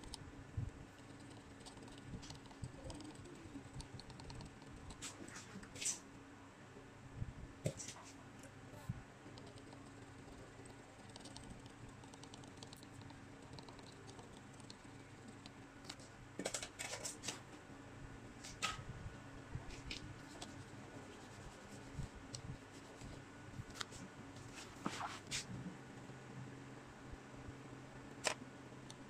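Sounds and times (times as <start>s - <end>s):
steady low hum: 0.0s - 29.0s
sharp ticks: 1.0s - 5.0s, 9.3s - 16.0s.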